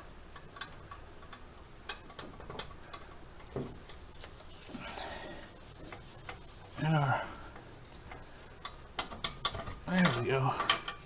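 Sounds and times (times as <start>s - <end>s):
light metallic clicks and taps: 0.3s - 4.0s, 7.5s - 11.0s
soft rubbing scrape: 3.7s - 9.0s.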